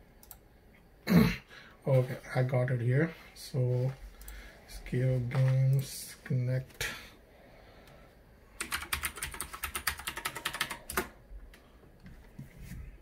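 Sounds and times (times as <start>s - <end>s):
typing on keyboard: 8.6s - 11.1s.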